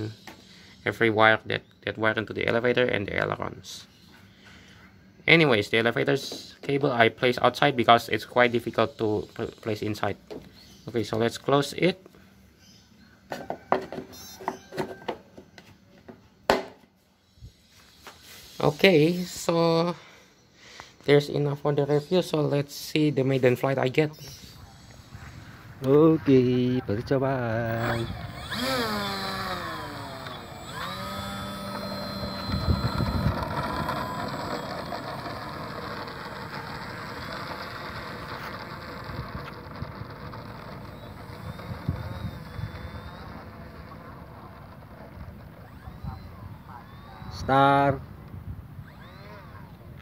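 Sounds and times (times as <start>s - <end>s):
electric motor whining: 14.0s - 14.9s, 24.3s - 26.0s, 27.0s - 50.0s.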